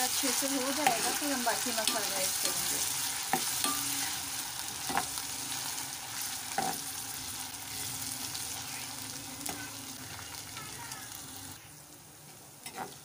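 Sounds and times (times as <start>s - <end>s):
onions sizzling in hot oil: 0.0s - 13.0s
metal spoon scraping a pan: 0.4s - 10.2s.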